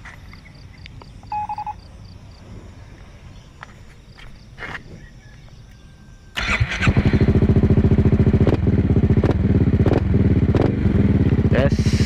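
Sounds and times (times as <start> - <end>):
scooter engine starting and idling: 6.3 - 11.5.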